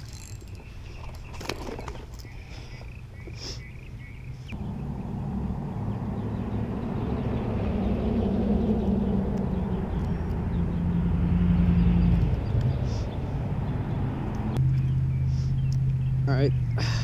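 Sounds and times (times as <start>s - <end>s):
engine drone: 4.3s - 17.0s.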